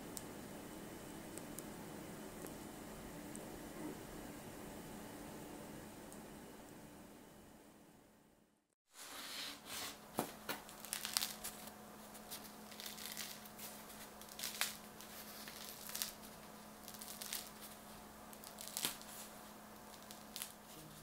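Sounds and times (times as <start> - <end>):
bread crust crackling and crunching: 10.3 - 21.0.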